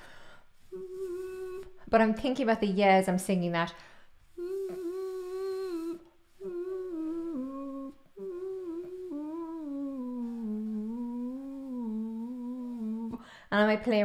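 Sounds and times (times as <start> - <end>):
woman humming melody: 0.7 - 2.0, 4.4 - 13.2.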